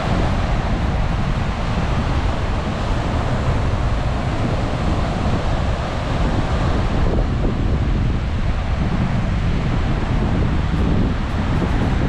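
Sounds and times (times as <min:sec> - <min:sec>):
strong wind buffeting microphone: 0:00.0 - 0:12.0
surf breaking on beach: 0:00.0 - 0:12.0.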